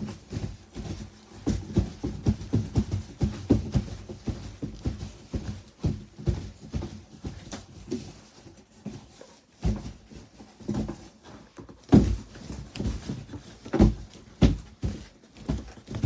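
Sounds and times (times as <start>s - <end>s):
thumps against cardboard box: 0.0s - 16.0s.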